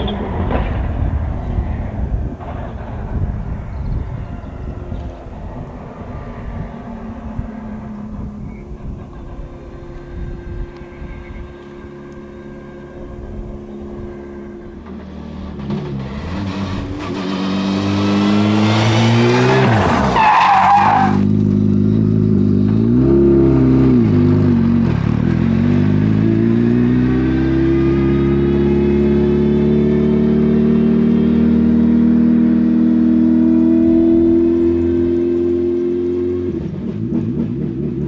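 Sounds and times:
rally car engine revving: 0:00.0 - 0:38.0
tyre squeal: 0:19.4 - 0:21.3.

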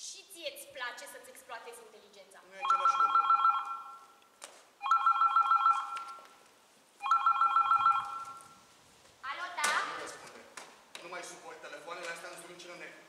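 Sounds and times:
telephone ringing with electronic trill: 0:02.6 - 0:04.1, 0:04.8 - 0:06.2, 0:07.0 - 0:08.6.

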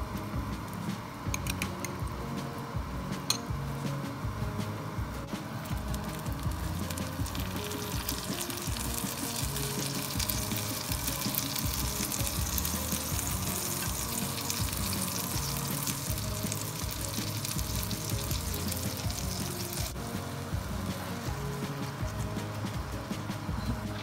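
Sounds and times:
background music: 0:00.0 - 0:24.0
egg sizzling in frying pan: 0:05.6 - 0:24.0.

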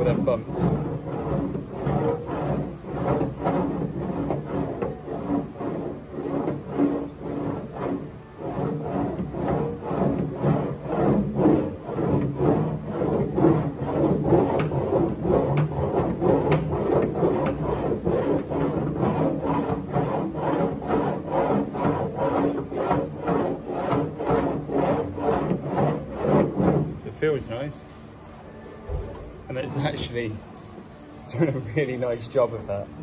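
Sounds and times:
metal wheel rasping over panel: 0:00.0 - 0:33.0.

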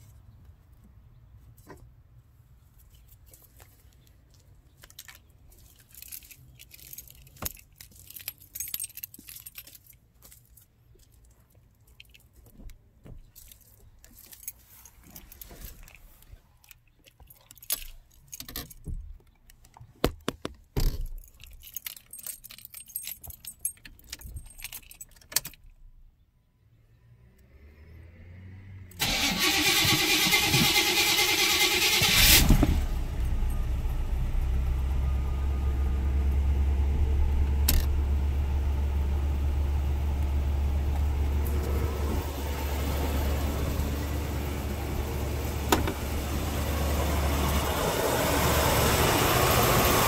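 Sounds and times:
car keys jangling: 0:04.8 - 0:12.6, 0:13.3 - 0:19.8, 0:20.8 - 0:25.9, 0:29.1 - 0:42.2
handling clicks and knocks: 0:16.6 - 0:25.8, 0:45.6 - 0:46.2.

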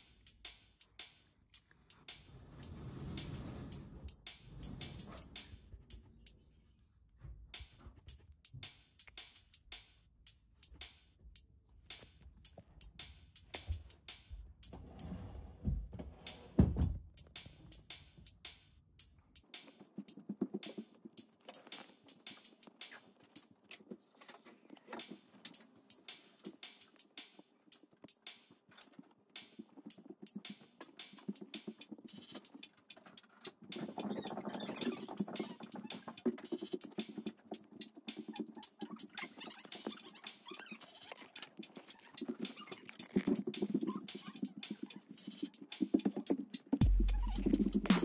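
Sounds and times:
drum machine beat: 0:00.0 - 0:02.2, 0:03.2 - 0:06.2, 0:07.6 - 0:14.8, 0:16.3 - 0:23.5, 0:25.5 - 0:28.8, 0:29.4 - 0:48.0
bass: 0:46.8 - 0:48.0.

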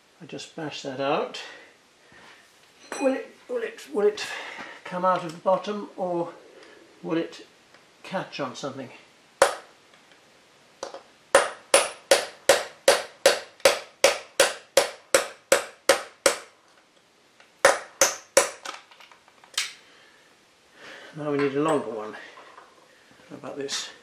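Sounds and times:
hammer tapping steel punch: 0:09.4 - 0:09.7, 0:10.8 - 0:16.5.

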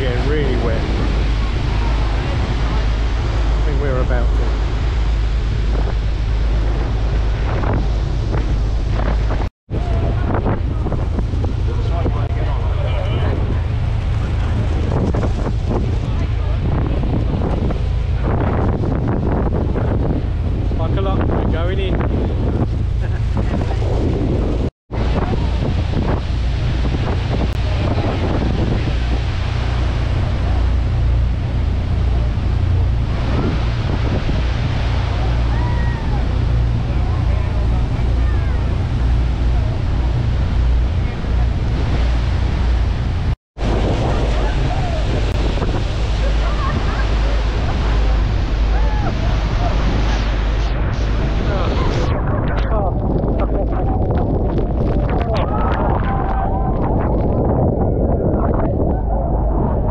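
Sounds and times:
rushing water: 0:00.0 - 0:59.9
wind buffeting microphone: 0:00.0 - 0:59.9
faint voices: 0:27.6 - 0:57.2.

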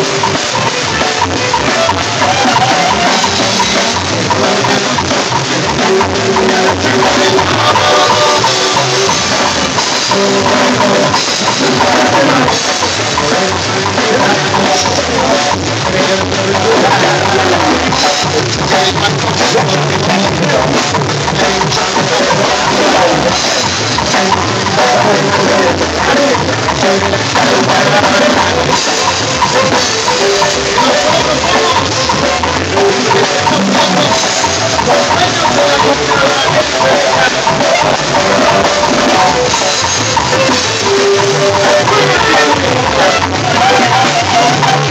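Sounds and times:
drum kit beat: 0:00.0 - 0:44.9
keyboard: 0:00.0 - 0:44.9
live band music: 0:00.0 - 0:44.9.

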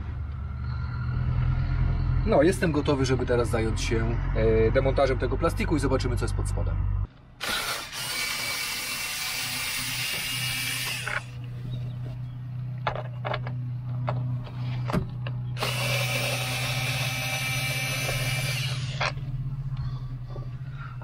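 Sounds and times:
low hum: 0:00.0 - 0:21.0
power drill running: 0:07.4 - 0:11.4, 0:15.6 - 0:19.2.

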